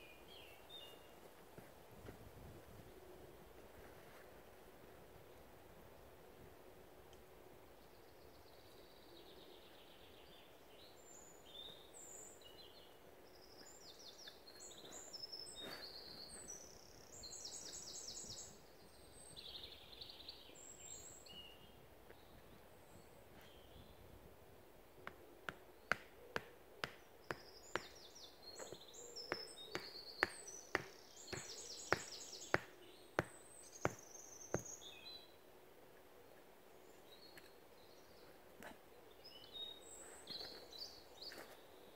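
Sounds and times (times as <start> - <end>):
birds singing: 7.8 - 24.1, 25.1 - 35.5, 36.2 - 41.9.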